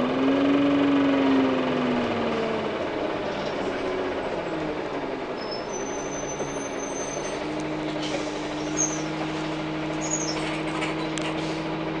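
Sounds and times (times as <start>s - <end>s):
bus engine droning: 0.0s - 12.0s
short high squeaks: 5.4s - 7.4s, 8.6s - 9.1s, 10.0s - 11.4s.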